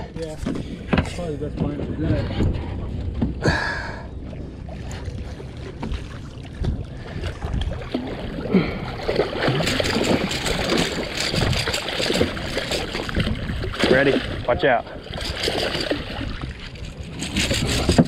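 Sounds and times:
water splashing against boat: 0:00.0 - 0:18.0
wind noise on microphone: 0:06.4 - 0:08.8, 0:09.7 - 0:18.0.

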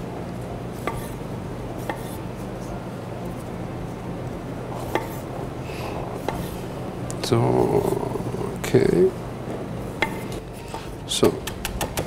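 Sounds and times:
steady low hum: 0:00.0 - 0:12.0
knife cutting on a cutting board: 0:00.8 - 0:01.2, 0:01.8 - 0:02.2, 0:04.8 - 0:05.2, 0:06.2 - 0:06.7.

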